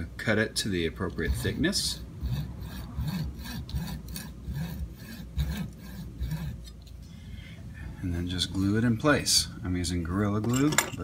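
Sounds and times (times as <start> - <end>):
hand saw rasping through rubber: 1.2 - 6.8.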